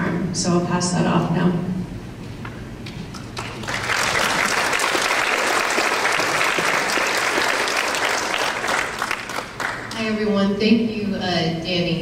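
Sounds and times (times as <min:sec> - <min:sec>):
audience applauding: 0:03.4 - 0:10.0.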